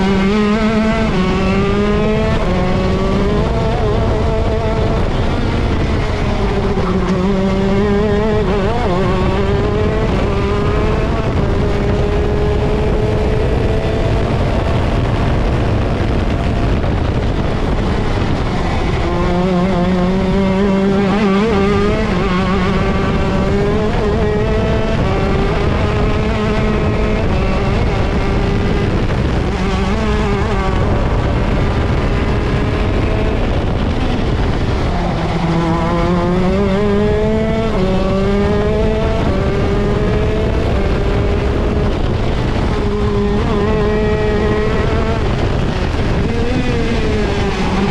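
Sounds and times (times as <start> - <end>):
kart engine running hard: 0.0 - 47.9.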